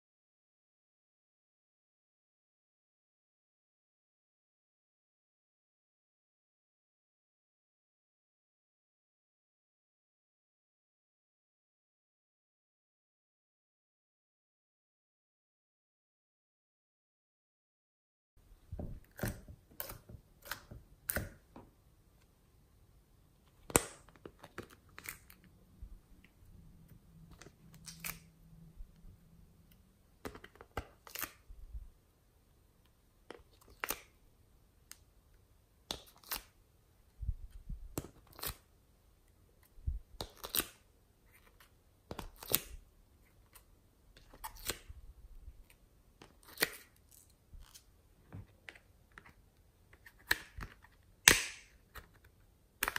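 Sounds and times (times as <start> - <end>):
clay clicks and crackles: 23.4 - 31.6, 34.8 - 52.9.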